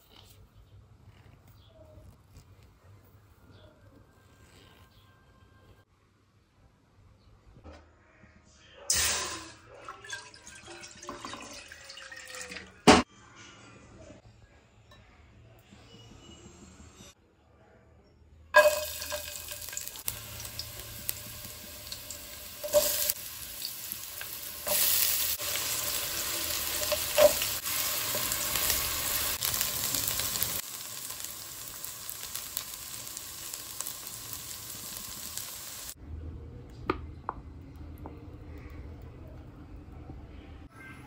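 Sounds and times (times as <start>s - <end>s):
vegetables sizzling in oil: 18.6s - 36.0s.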